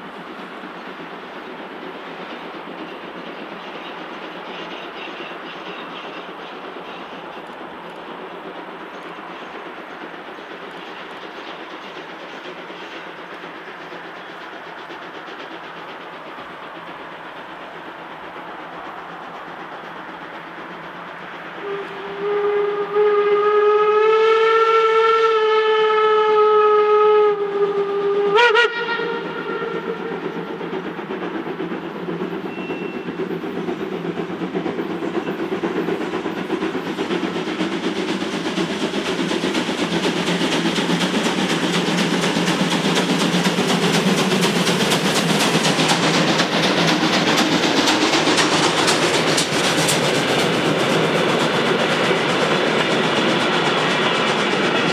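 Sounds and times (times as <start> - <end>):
train running noise: 0.0 - 54.9
steam whistle blast: 21.6 - 30.1.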